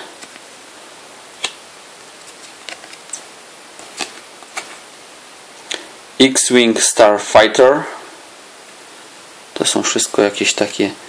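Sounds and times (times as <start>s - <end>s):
faint hiss: 0.0s - 11.0s
paper cards clicking: 1.4s - 1.6s, 2.2s - 3.2s, 3.8s - 4.7s.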